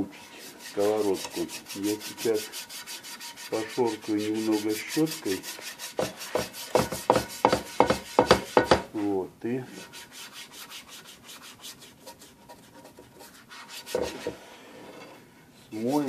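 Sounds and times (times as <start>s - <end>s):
brush scrubbing a frying pan: 0.0s - 15.1s, 15.7s - 16.0s
person speaking: 0.6s - 2.6s, 3.5s - 5.6s, 15.7s - 16.0s.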